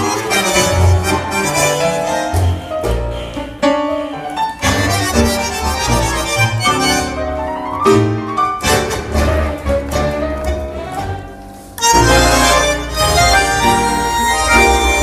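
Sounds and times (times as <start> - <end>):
tango orchestra playing: 0.0 - 15.0.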